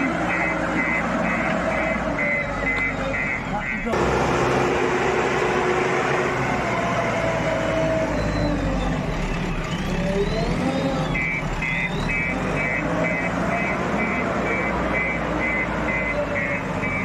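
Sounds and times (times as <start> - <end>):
reversing alarm beeping: 0.0 - 4.0, 7.4 - 17.0
diesel engine running under load: 0.0 - 17.0.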